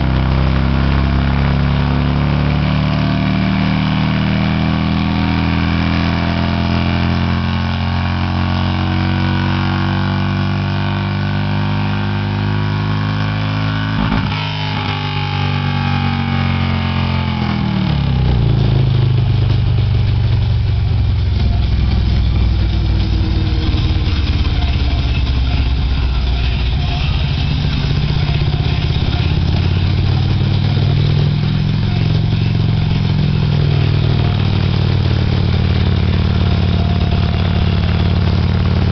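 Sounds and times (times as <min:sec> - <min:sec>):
motorcycle engine under load: 0:00.0 - 0:38.9
deep rough engine rumble: 0:13.6 - 0:38.9.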